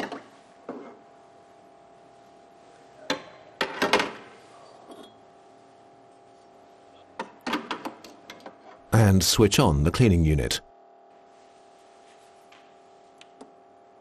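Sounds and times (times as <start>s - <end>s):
faint steady hum: 8.1s - 14.0s.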